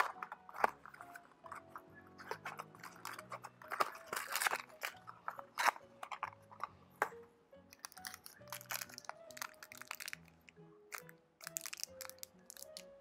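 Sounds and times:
cardboard box rustling: 0.0 - 6.7
foil wrapper crinkling: 0.0 - 6.7, 7.8 - 10.3, 10.9 - 12.8.

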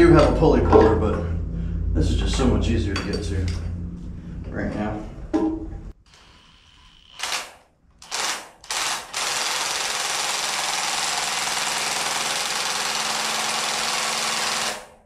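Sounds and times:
impact wrench hammering: 6.2 - 15.0.

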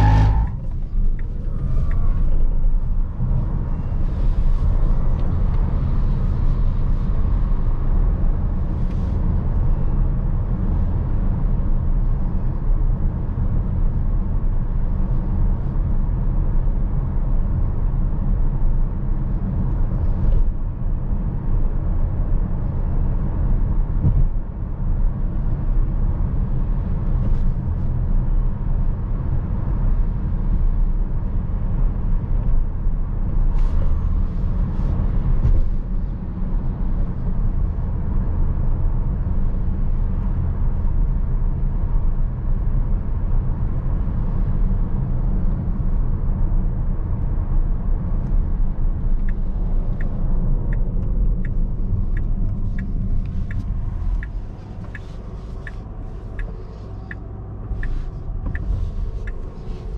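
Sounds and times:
road and tyre rumble: 0.0 - 59.9
light regular ticking: 49.2 - 59.9.

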